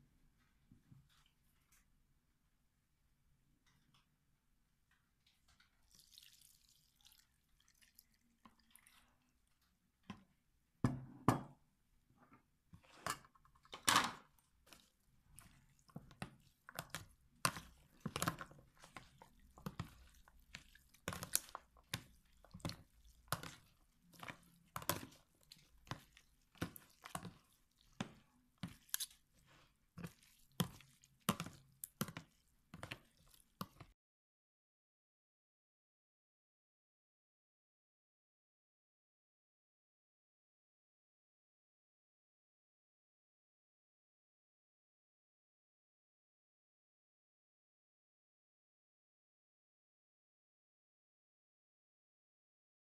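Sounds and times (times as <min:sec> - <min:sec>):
spoon mixing wet vegetables: 0:05.2 - 0:10.5, 0:12.6 - 0:34.0
liquid pouring: 0:05.7 - 0:09.6.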